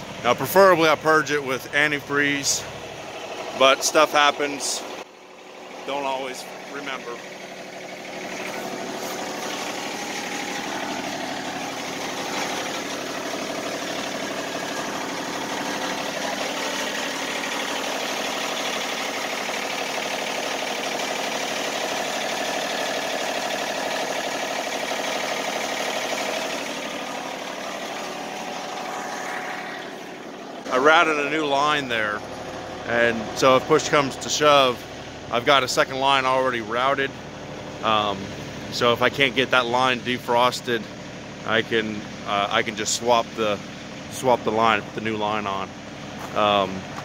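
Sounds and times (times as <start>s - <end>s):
sawmill engine running: 0.0s - 47.0s.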